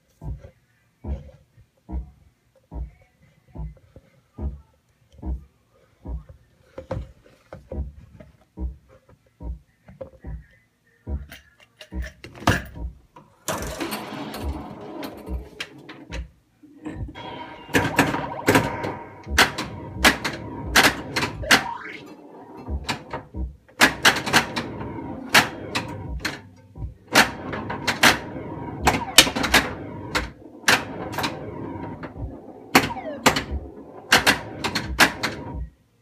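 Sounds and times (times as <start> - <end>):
pinball machine clacks: 11.9 - 35.7
electronic sound effects: 16.9 - 23.2, 30.9 - 34.7.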